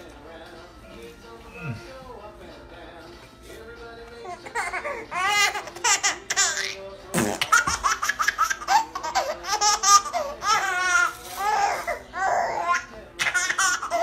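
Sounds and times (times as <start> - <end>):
baby laughing: 4.2 - 14.0.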